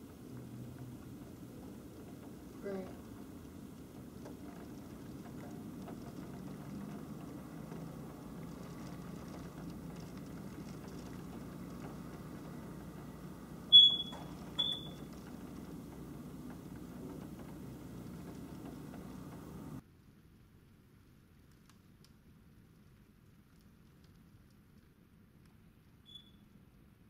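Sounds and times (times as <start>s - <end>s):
steady low hum: 0.0s - 19.8s
short high-pitched electronic beeps: 13.7s - 15.0s.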